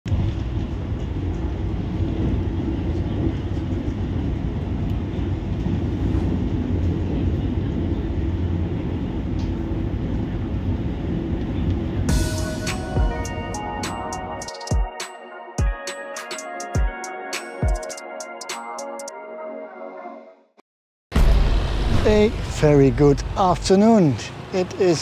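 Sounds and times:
train rumbling: 0.1 - 14.6, 21.2 - 25.0.

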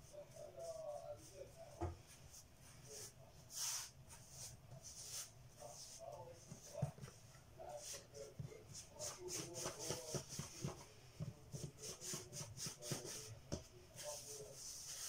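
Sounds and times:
hands rolling dough on wood: 0.0 - 15.0.

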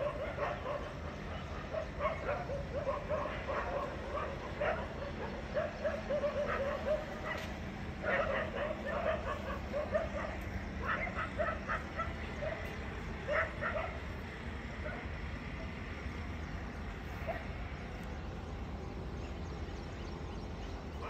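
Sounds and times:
dog barking: 0.0 - 12.7, 13.3 - 14.0
low background rumble: 0.0 - 21.0.

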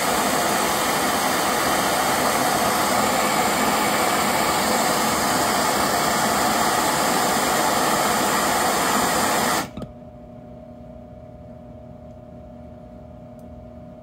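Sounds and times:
gas torch hissing: 0.0 - 9.8
faint steady hum: 0.0 - 14.0.

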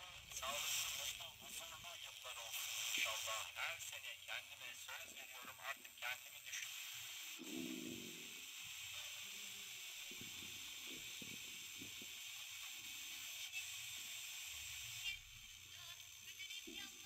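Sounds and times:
radio receiver hiss: 0.0 - 17.0.

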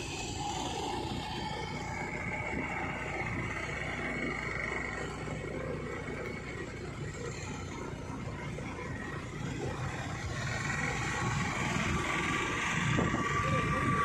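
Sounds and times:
motorcycle engine running: 0.0 - 14.0
road and wind noise: 0.0 - 14.0.

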